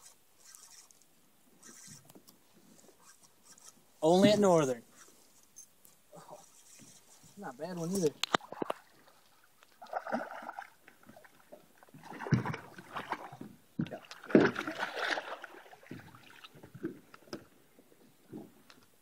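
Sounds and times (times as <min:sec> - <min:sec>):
fish splashing and thrashing: 0:08.2 - 0:17.2.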